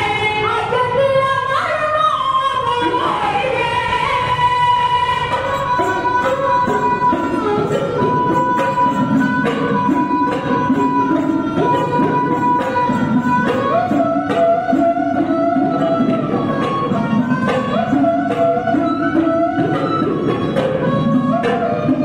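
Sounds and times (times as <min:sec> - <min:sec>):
women singing: 0:00.0 - 0:06.3
bowed strings accompaniment: 0:05.2 - 0:22.0.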